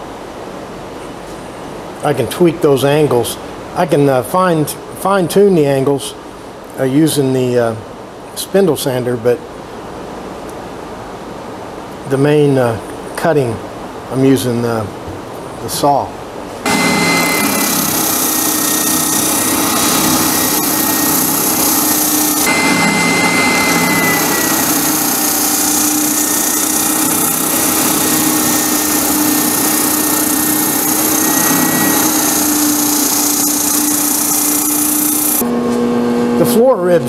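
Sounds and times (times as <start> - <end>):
sander motor hum: 16.6 - 36.4
sanding hiss on wood: 17.2 - 22.5, 23.5 - 35.4.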